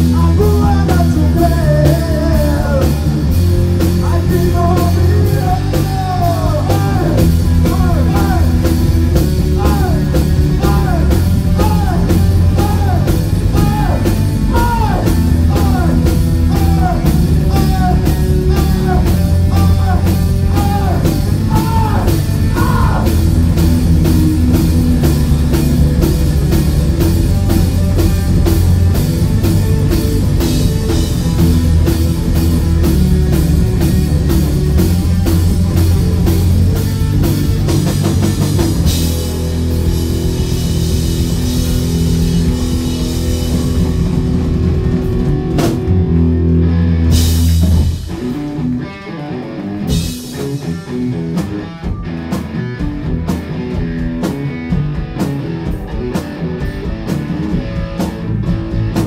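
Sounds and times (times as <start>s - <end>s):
person singing: 0.0s - 3.1s, 4.0s - 8.7s, 9.5s - 23.2s
live rock band playing: 0.0s - 59.0s.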